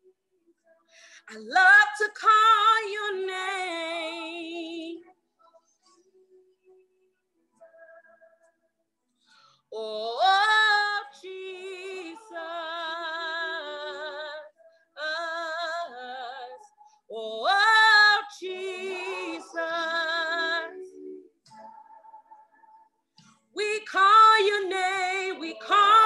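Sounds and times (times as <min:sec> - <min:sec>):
woman singing gospel solo: 0:01.2 - 0:05.0, 0:09.8 - 0:21.8, 0:23.6 - 0:26.0.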